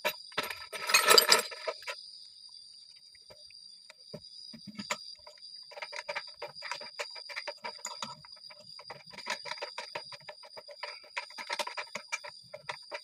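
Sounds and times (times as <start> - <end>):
rapid light metallic clicking: 4.6 - 13.0.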